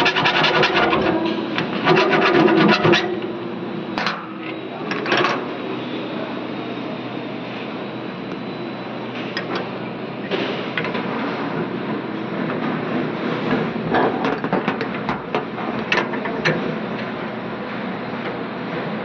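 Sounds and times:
steady background noise: 0.0s - 19.0s.

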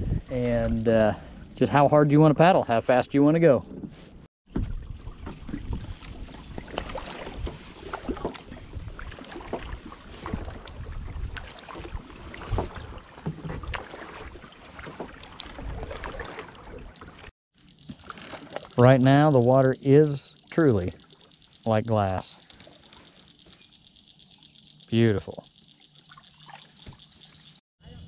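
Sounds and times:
kayak paddle splashing water: 4.5s - 19.1s, 25.5s - 27.6s.

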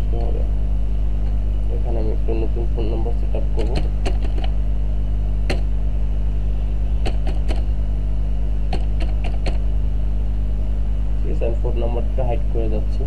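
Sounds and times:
low electrical hum: 0.0s - 13.0s
keyboard keystrokes: 3.6s - 4.5s, 7.0s - 7.7s, 8.7s - 9.6s.

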